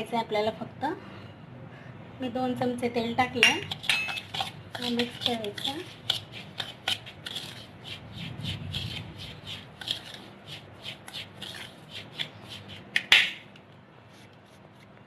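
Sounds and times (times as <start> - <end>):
spoon clinking on bowl: 3.4 - 4.5
spoon scraping semolina in bowl: 3.4 - 13.4.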